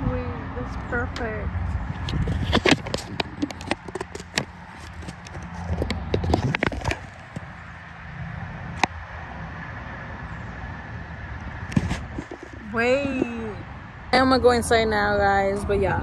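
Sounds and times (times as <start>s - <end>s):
steady low rumble: 0.0s - 16.0s
phone handling clicks and rubbing: 2.0s - 7.5s.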